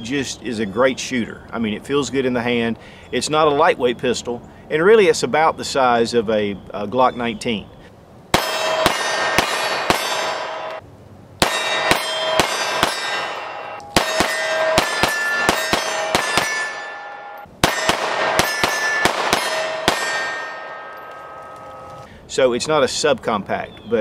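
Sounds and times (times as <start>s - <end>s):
pistol shots: 8.3s - 10.8s, 11.4s - 22.1s
steel target ringing: 8.3s - 10.8s, 11.4s - 22.1s.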